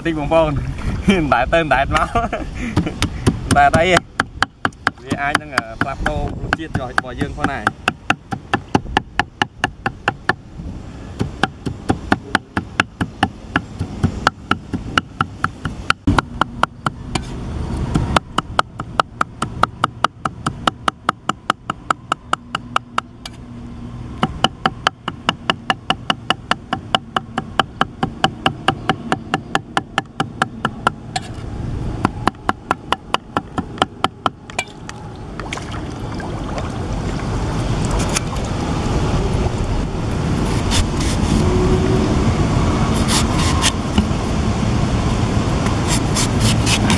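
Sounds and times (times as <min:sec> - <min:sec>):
cleaver chopping on wooden block: 0:02.8 - 0:10.4, 0:11.2 - 0:17.3, 0:17.9 - 0:23.1, 0:24.2 - 0:31.3, 0:32.0 - 0:34.8.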